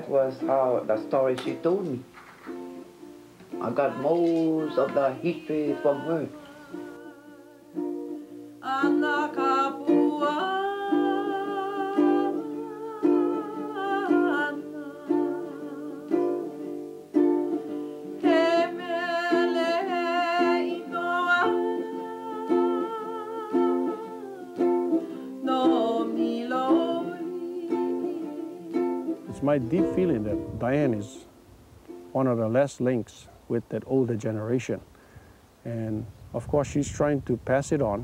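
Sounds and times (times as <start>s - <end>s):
ukulele strumming: 0.0s - 33.1s
woman singing: 3.5s - 17.0s, 18.0s - 29.3s.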